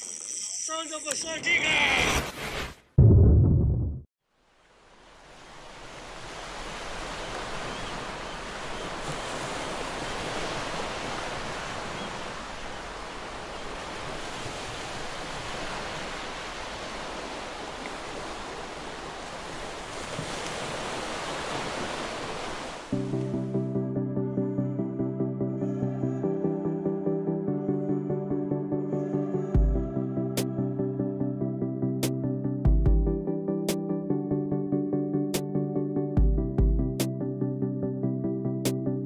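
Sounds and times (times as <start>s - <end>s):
wind: 4.2s - 23.4s
ocean surf: 4.4s - 23.0s
music: 22.9s - 39.0s.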